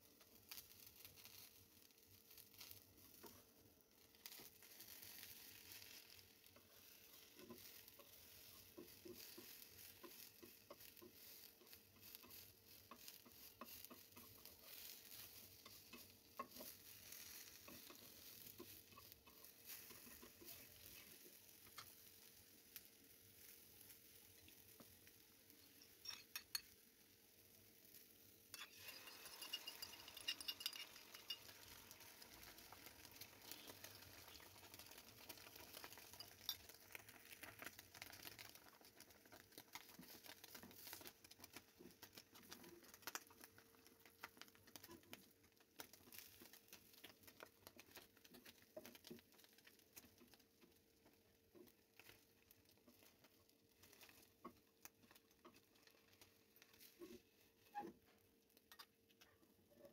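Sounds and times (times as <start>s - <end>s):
egg sizzling in hot oil: 0.0s - 59.4s
spatula tapping pan: 5.8s - 22.0s, 25.9s - 26.7s, 28.5s - 37.0s.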